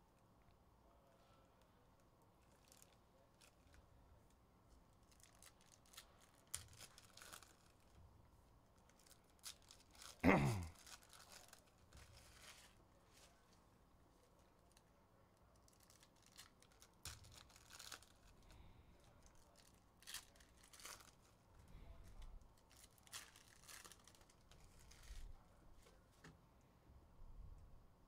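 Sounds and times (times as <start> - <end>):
foil wrappers crinkling: 2.4 - 3.8, 5.0 - 8.0, 8.8 - 13.6, 15.5 - 25.9
foil wrapper ripping: 5.0 - 8.0, 8.9 - 12.8, 15.6 - 18.4, 19.0 - 21.4, 22.2 - 25.3.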